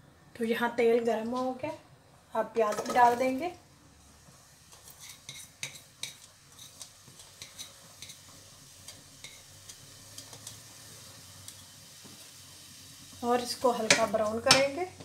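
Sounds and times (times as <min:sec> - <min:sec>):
onions sizzling in oil: 0:02.6 - 0:15.0
sharp crackles and pops: 0:11.3 - 0:12.3.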